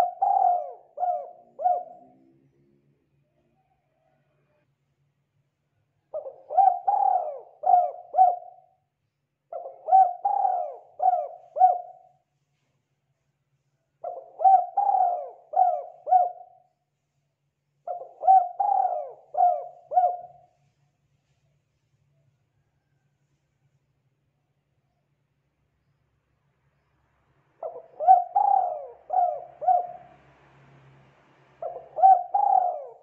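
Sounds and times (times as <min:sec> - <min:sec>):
dove cooing: 0:00.0 - 0:02.3, 0:06.1 - 0:08.8, 0:09.5 - 0:12.2, 0:14.0 - 0:16.7, 0:17.8 - 0:20.5, 0:27.6 - 0:30.2, 0:31.6 - 0:33.0.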